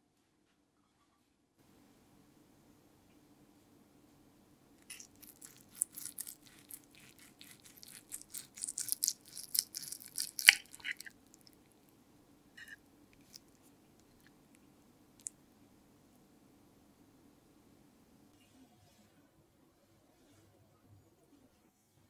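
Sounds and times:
knife and fork scraping plate: 0:09.5 - 0:11.1, 0:12.6 - 0:12.8.

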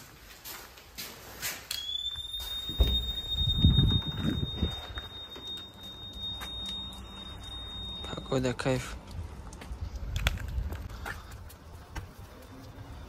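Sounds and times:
steady high-pitched tone: 0:01.7 - 0:08.9.

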